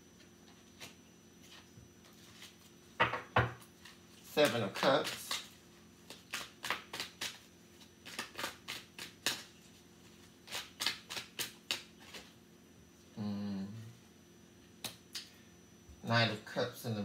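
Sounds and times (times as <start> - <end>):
cards being shuffled: 3.8 - 12.3
person humming: 13.2 - 14.0.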